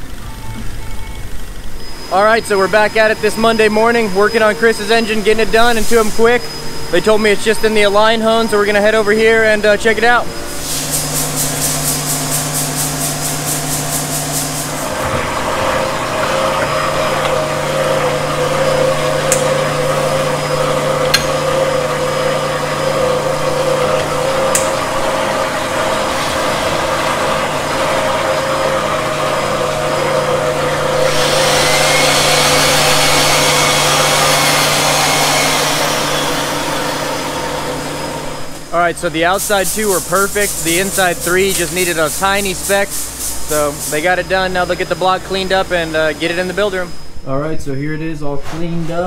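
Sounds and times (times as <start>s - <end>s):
honing machine tone: 0.0s - 10.7s, 39.8s - 42.8s, 43.5s - 48.0s
loud hiss: 5.3s - 15.4s, 39.0s - 47.2s.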